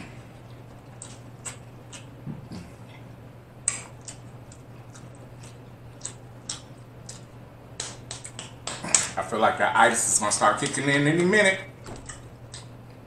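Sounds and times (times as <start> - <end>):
lip smacks: 0.0 - 9.2, 12.0 - 13.0
person chewing food: 0.0 - 9.2.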